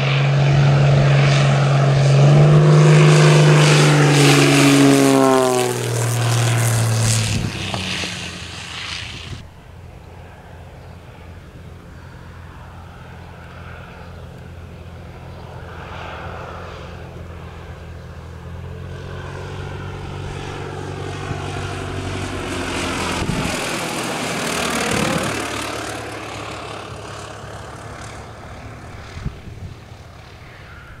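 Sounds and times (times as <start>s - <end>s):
light aircraft engine drone: 0.0s - 31.0s.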